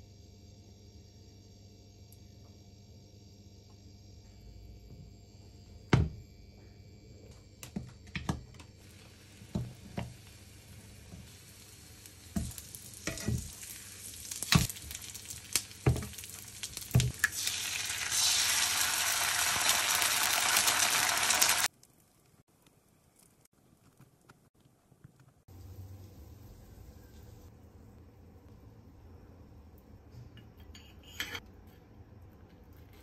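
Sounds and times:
food sizzling in frying pan: 8.8 - 22.4
tongs knocking on pan: 12.3 - 13.5.

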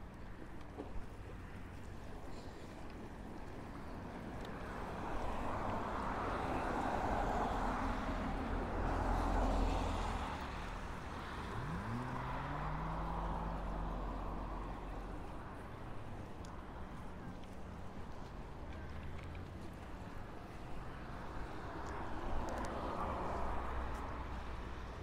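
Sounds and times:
vehicle passing: 7.0 - 15.0
engine accelerating: 11.4 - 14.2.

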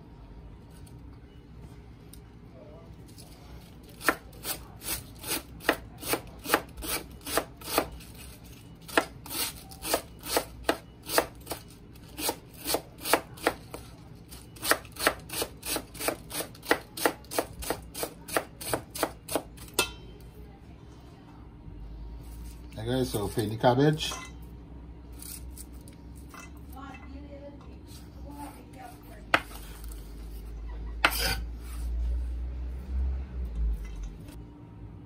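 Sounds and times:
knife chopping on wooden board: 8.9 - 11.3, 14.6 - 19.5, 29.3 - 29.7.

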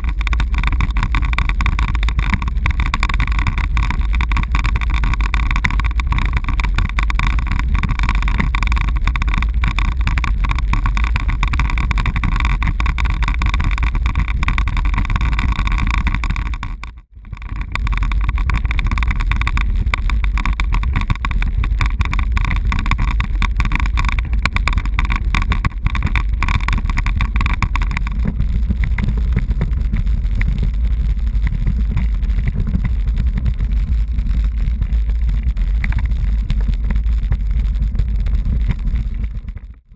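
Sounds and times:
bicycle rattling over cobblestones: 0.0 - 39.9
wind on microphone: 0.0 - 39.9.

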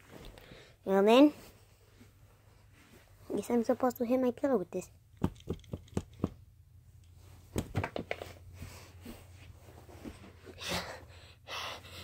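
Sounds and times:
toy wand knocking on pillow: 5.2 - 6.4.

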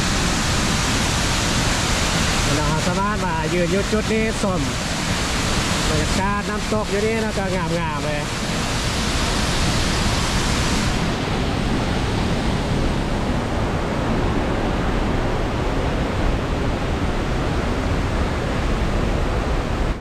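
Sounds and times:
waterfall roaring: 0.0 - 20.0.

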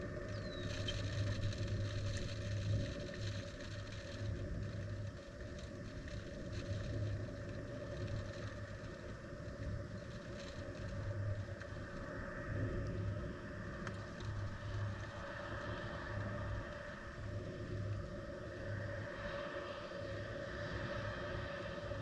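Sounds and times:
rain ticks: 0.0 - 18.1
wind buffeting microphone: 0.0 - 22.0.

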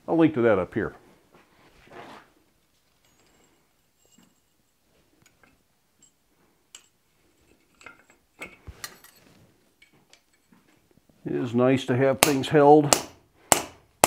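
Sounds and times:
light metallic clinks: 2.9 - 10.8.

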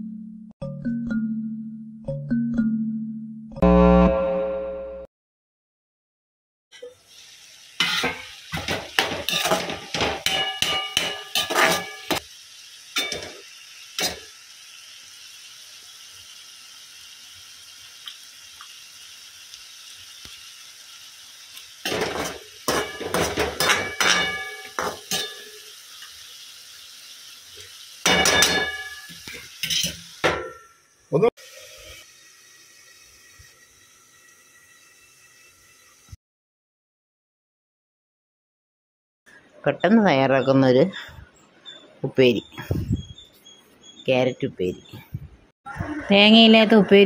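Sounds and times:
faint sizzle: 6.8 - 36.2
metal spatula scraping a wok: 7.8 - 12.2, 21.8 - 25.7, 28.1 - 30.2.

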